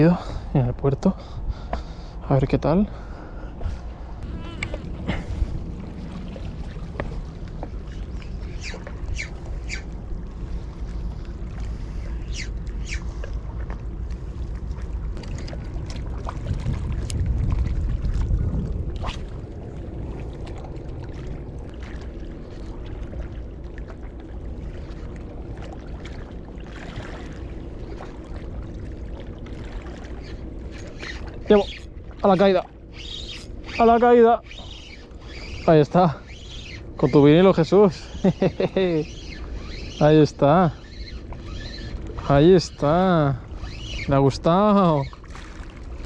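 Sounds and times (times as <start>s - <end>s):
low rumble: 0.0s - 33.7s.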